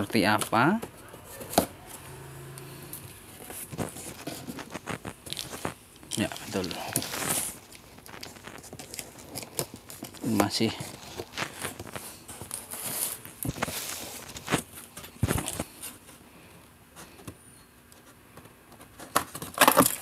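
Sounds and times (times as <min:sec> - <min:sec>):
tearing and rustling: 0:03.4 - 0:16.1, 0:19.0 - 0:20.0.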